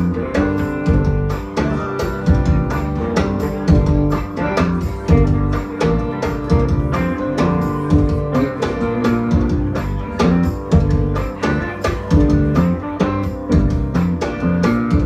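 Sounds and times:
bass line: 0.0 - 15.0
electric guitar lines: 0.0 - 15.0
hand-drum beat: 0.0 - 15.0.

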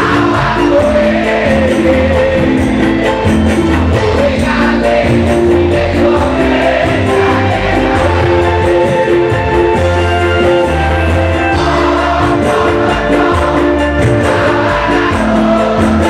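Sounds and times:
person singing: 0.0 - 2.6
live band playing: 0.0 - 16.0.

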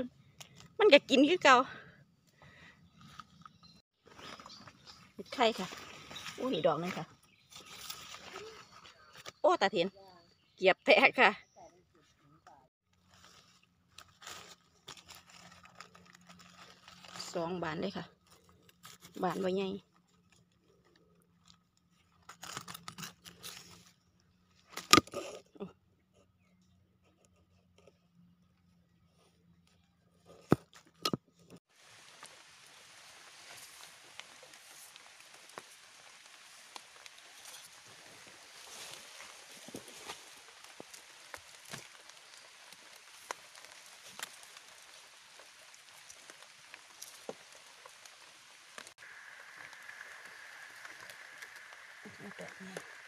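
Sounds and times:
knife scraping in soil: 7.3 - 9.4, 21.4 - 25.5
small clicks and crackles: 12.4 - 53.0
steady hiss: 44.1 - 53.0.

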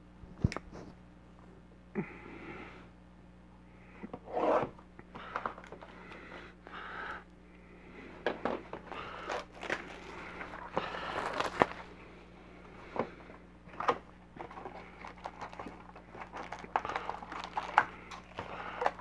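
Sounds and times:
plastic wrap tearing and crinkling: 9.0 - 11.9, 13.7 - 19.0
knife slitting plastic wrap: 9.2 - 11.9.

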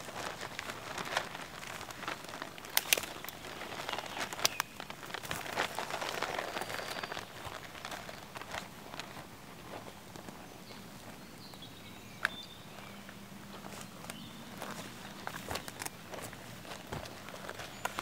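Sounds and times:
paper rustling and crinkling: 0.0 - 11.2, 13.5 - 18.0.

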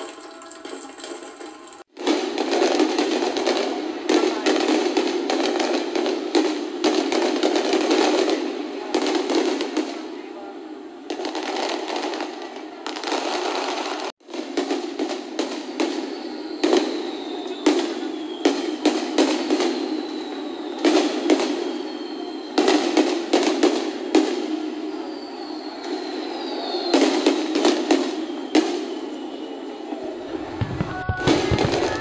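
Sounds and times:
firework shells bursting: 0.0 - 3.8, 30.3 - 32.0
firework whistles falling in pitch: 14.6 - 32.0.

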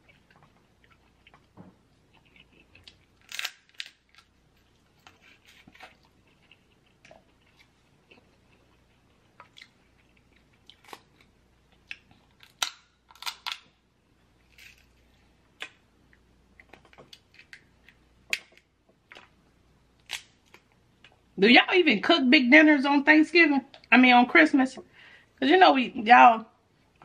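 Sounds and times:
chewing and mouth sounds: 0.0 - 3.4, 4.1 - 12.5
crab shell cracking: 2.8 - 4.3, 11.9 - 13.7.

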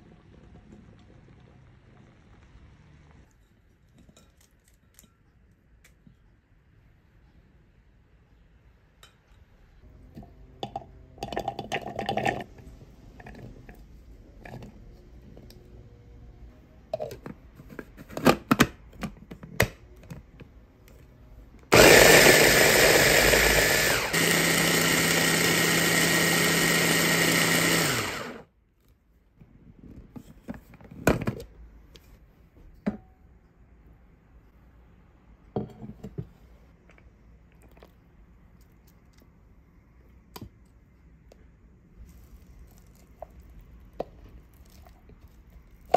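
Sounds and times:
electric mini chopper running: 21.7 - 28.4.

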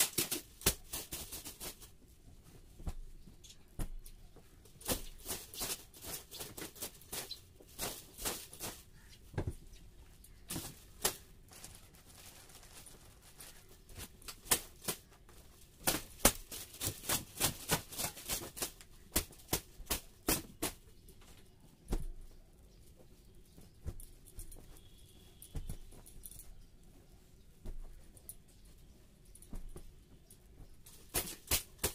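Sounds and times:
hand broom swatting a sheet: 0.0 - 2.0, 15.8 - 20.9, 29.5 - 31.9.

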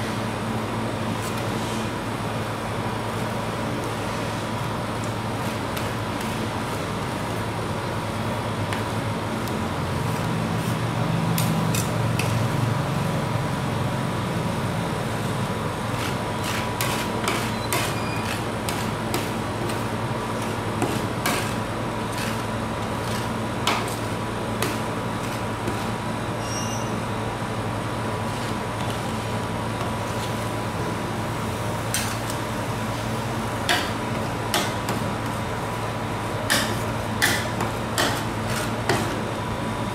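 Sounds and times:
metal spatulas scraping a cold plate: 16.0 - 19.8, 20.4 - 26.9.

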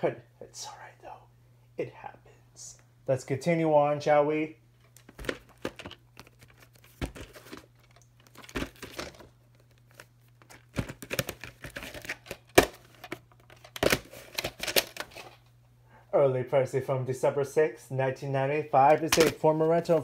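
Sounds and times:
faint low hum: 0.0 - 20.0
plastic case rustling and scraping: 4.8 - 15.5.

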